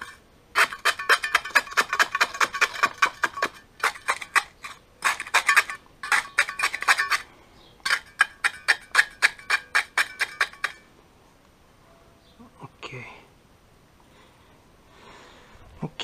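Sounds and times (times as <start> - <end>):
trowel tapping metal grating: 0.0 - 10.9.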